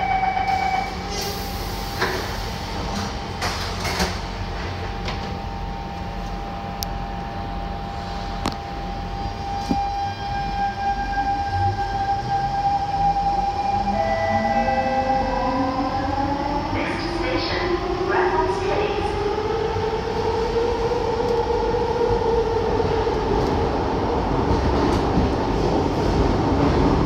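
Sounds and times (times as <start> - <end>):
train doors sliding shut: 0.5 - 5.4.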